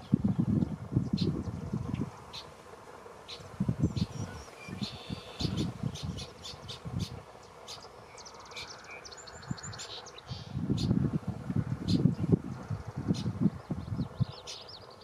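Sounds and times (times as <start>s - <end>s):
wind gusts on microphone: 0.0s - 2.5s, 3.3s - 7.3s, 9.3s - 14.6s
birds chipping and trilling: 0.0s - 2.6s, 3.2s - 15.0s.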